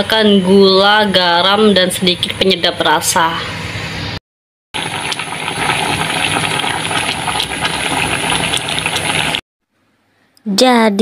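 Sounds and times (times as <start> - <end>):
soup bubbling in a wok: 4.8 - 9.4.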